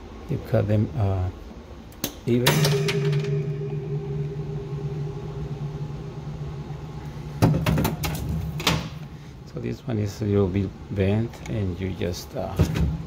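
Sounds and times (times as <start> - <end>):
machine hum: 2.3 - 10.1.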